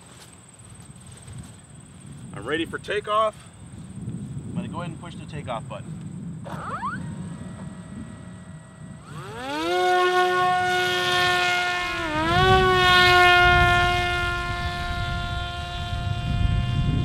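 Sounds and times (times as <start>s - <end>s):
wind rumbling on microphone: 0.6s - 17.0s
electric propeller motor whine: 6.0s - 17.0s.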